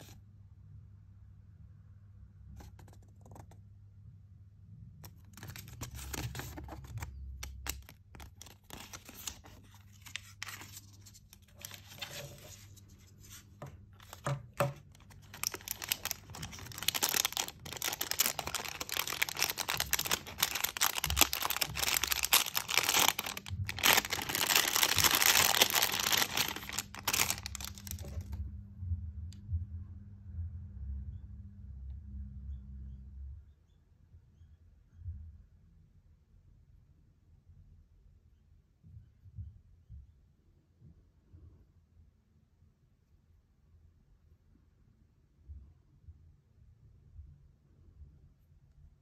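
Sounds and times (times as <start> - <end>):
plastic wrapping crinkling: 5.1 - 28.4.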